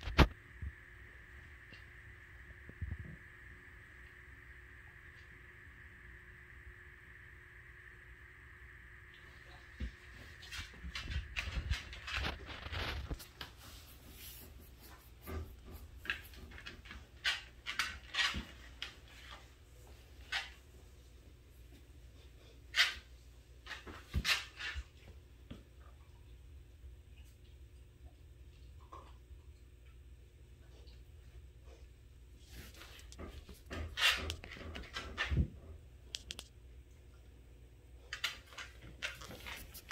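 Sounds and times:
puppy sniffing and snuffling: 0:11.4 - 0:17.5.

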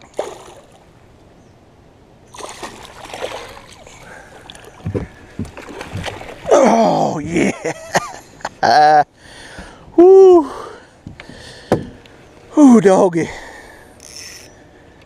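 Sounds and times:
water splashing at a boat: 0:00.0 - 0:01.2, 0:02.3 - 0:08.5
fish thrashing at the surface: 0:00.1 - 0:00.8, 0:02.3 - 0:07.0
person crying out: 0:06.5 - 0:07.3, 0:10.0 - 0:10.6
knocks: 0:11.1 - 0:12.0.

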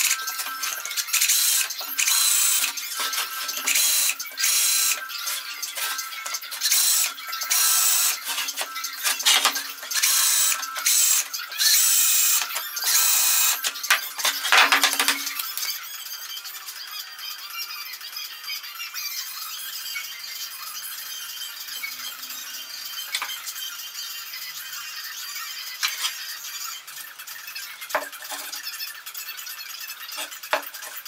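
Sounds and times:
electric jigsaw cutting board: 0:00.0 - 0:15.7, 0:21.8 - 0:23.6, 0:30.1 - 0:31.0.

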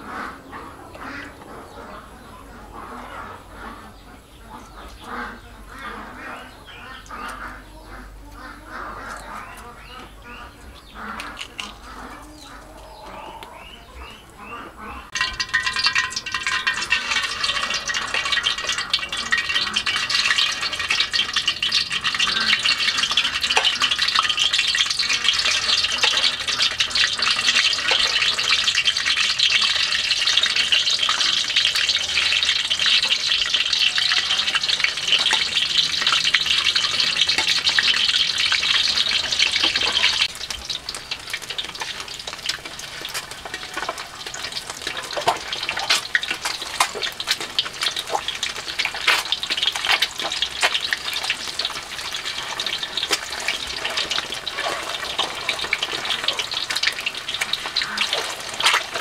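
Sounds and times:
eggs sizzling in hot oil: 0:10.9 - 0:13.8, 0:14.4 - 0:59.0
oil crackling and popping: 0:11.0 - 0:12.5, 0:15.1 - 0:59.0.

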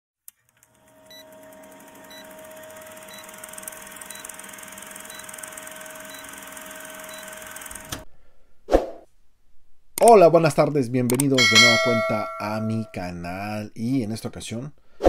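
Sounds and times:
projector-like whirr: 0:00.5 - 0:08.0
fine rapid ticking: 0:01.0 - 0:07.9.

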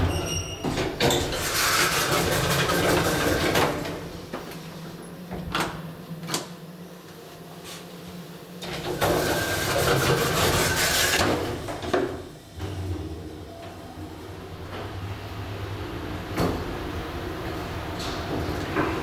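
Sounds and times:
elevator doors sliding: 0:00.0 - 0:04.3.

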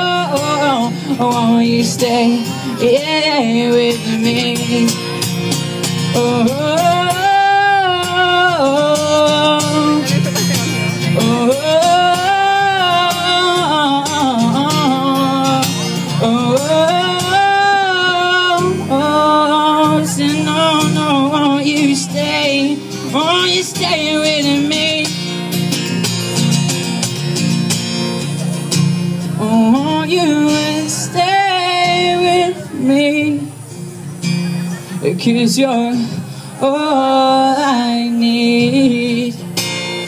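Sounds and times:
man singing wordless melody: 0:00.0 - 0:25.8, 0:29.3 - 0:33.6, 0:34.9 - 0:40.0
strummed acoustic guitar: 0:00.0 - 0:40.0.

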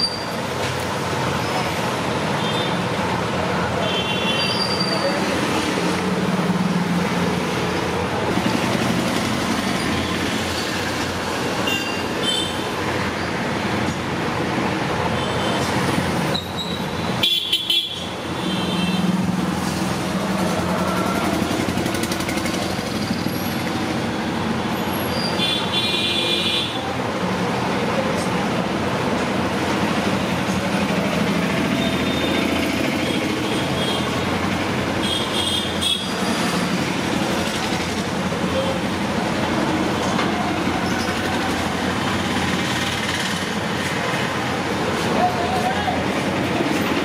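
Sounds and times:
busy road traffic: 0:00.0 - 0:47.0
vehicle horn toots: 0:17.2 - 0:19.1.

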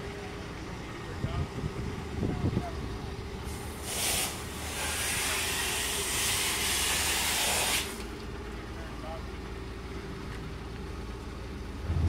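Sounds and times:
low engine hum: 0:00.0 - 0:04.8, 0:07.9 - 0:12.0
loud hiss of escaping air: 0:03.5 - 0:08.1.

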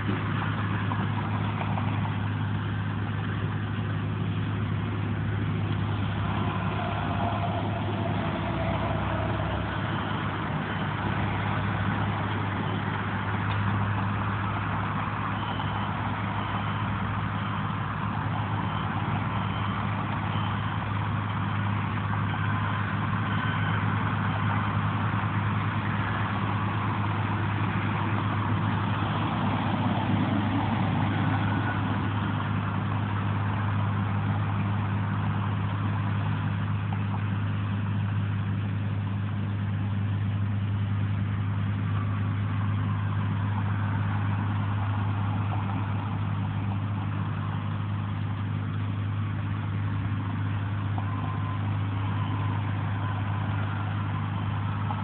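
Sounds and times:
traffic engine hum: 0:00.0 - 0:55.0
vehicles passing: 0:00.0 - 0:55.0.

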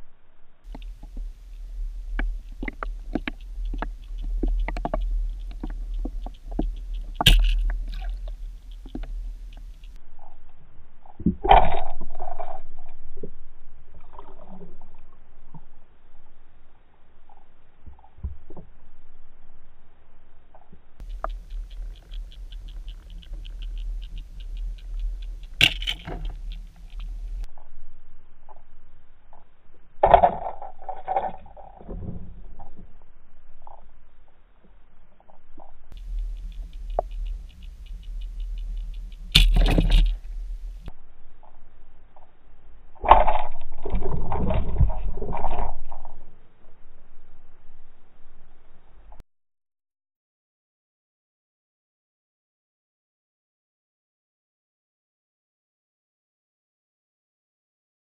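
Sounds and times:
muffled underwater rumble: 0:00.0 - 0:49.2
steady ticking: 0:00.7 - 0:10.0, 0:21.0 - 0:27.5, 0:35.9 - 0:40.9
sharp loud clicks: 0:02.1 - 0:10.0, 0:21.0 - 0:27.5, 0:36.0 - 0:40.9
clicks and knocks: 0:25.4 - 0:27.4, 0:36.0 - 0:40.8.

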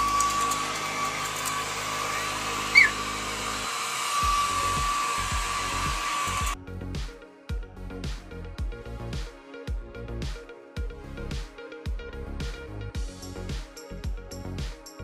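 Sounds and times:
hair dryer whining: 0:00.0 - 0:06.6
short high squeak: 0:02.7 - 0:03.1.

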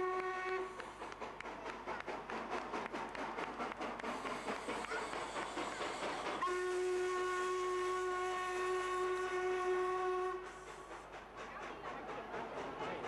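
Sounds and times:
steam locomotive whistle: 0:00.0 - 0:00.8, 0:05.6 - 0:10.8
steam engine hissing: 0:00.0 - 0:13.0.

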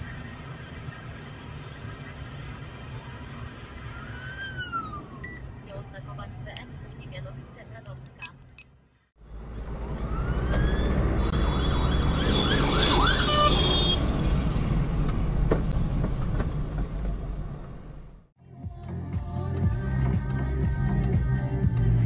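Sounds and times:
road rumble inside car: 0:00.0 - 0:08.5, 0:09.1 - 0:22.0
ambulance siren: 0:02.7 - 0:06.6, 0:09.9 - 0:14.0.

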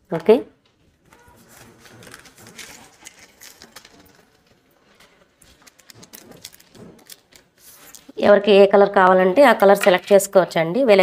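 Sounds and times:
beads clicking and rustling: 0:01.5 - 0:08.1.

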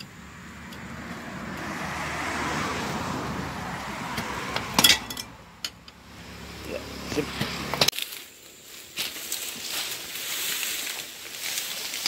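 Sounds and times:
road vehicle passing by: 0:00.0 - 0:07.9.

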